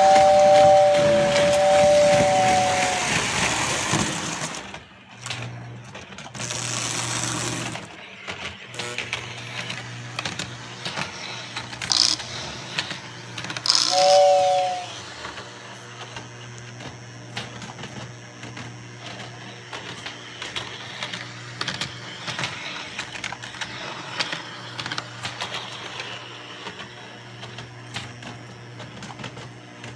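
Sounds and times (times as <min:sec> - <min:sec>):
two-tone train whistle: 0:00.0 - 0:04.0, 0:13.7 - 0:15.4
model train running on track: 0:00.0 - 0:29.9
wheels clicking over rails: 0:00.0 - 0:29.9.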